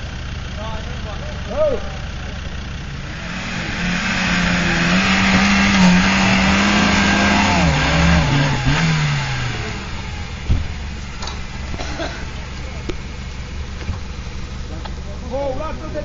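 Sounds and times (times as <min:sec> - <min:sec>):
engine revving under load: 0:02.1 - 0:15.1
thump: 0:10.4 - 0:12.2, 0:13.8 - 0:14.1.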